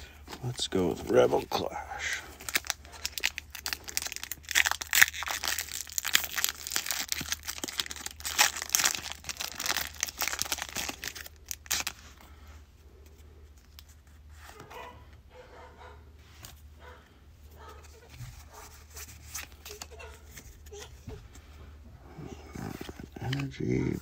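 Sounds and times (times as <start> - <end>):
foil wrapper tearing and crinkling: 2.2 - 12.1
cards being handled: 13.0 - 14.8, 17.6 - 21.5, 22.7 - 24.0.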